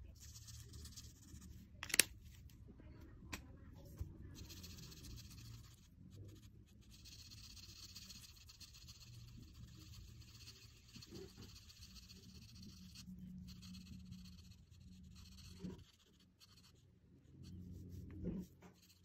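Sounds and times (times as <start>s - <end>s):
marker scratching on paper: 4.4s - 19.0s.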